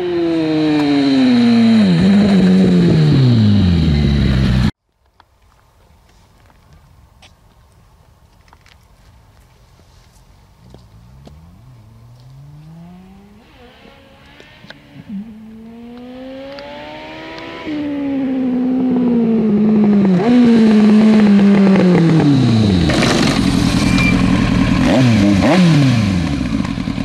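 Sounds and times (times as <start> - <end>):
motorcycle engine accelerating: 0.0 - 4.8, 10.6 - 27.0.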